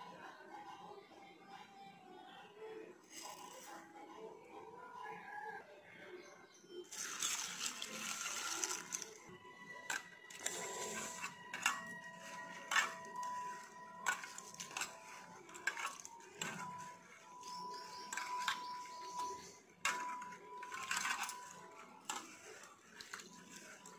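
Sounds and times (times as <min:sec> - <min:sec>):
water pouring into steel bowl: 0:06.9 - 0:09.2
grains clicking against steel bowl: 0:06.9 - 0:09.3, 0:09.9 - 0:23.9.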